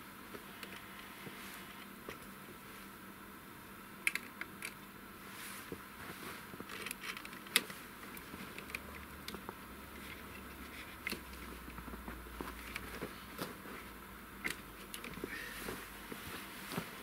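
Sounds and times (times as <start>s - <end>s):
faint low hum: 0.0s - 17.0s
clicks of plastic connectors: 4.0s - 4.8s, 6.6s - 11.9s, 14.4s - 15.3s.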